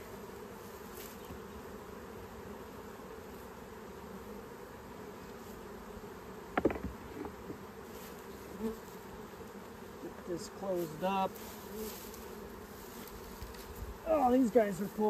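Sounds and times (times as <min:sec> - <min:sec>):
honeybees buzzing: 0:00.0 - 0:15.0
wood knocking on wood: 0:06.6 - 0:07.6.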